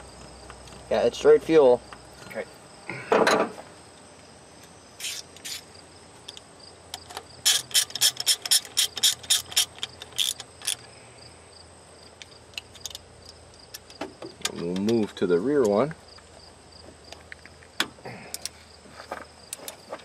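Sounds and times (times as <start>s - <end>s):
socket ratchet clicking: 7.0s - 10.8s.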